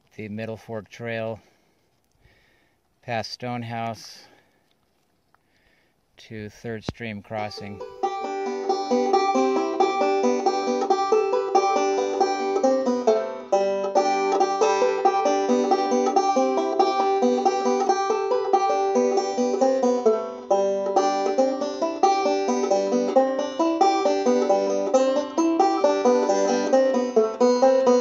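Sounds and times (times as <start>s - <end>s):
fast-picked banjo: 7.4s - 28.0s.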